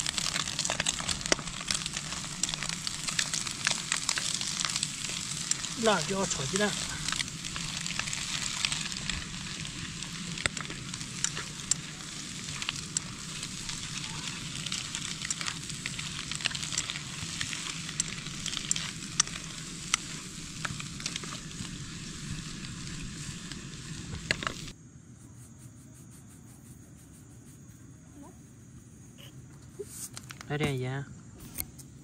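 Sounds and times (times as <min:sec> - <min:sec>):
food sizzling in a pan: 0:00.0 - 0:24.8.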